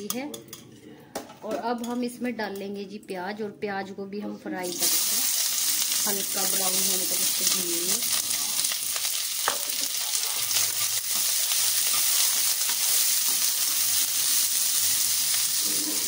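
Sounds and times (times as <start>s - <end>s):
onions sizzling in oil: 4.6s - 16.0s.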